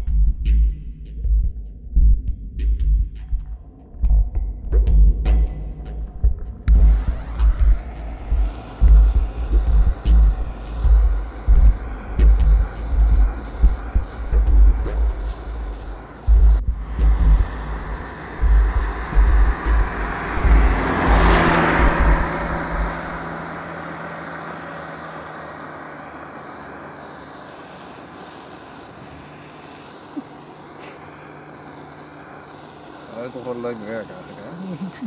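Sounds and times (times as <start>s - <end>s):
wind buffeting microphone: 6.6s - 24.4s
butane torch hissing: 6.6s - 35.0s.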